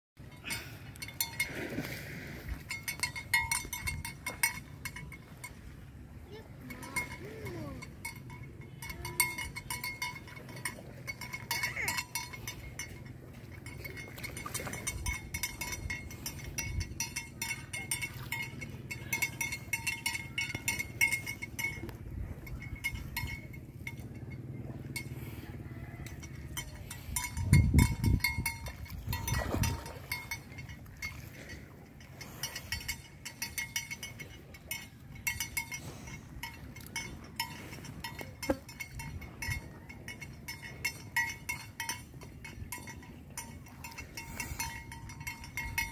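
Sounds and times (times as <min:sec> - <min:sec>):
thin steady high tone: 0:06.2 - 0:25.1
light clicking and clinking: 0:06.4 - 0:45.9.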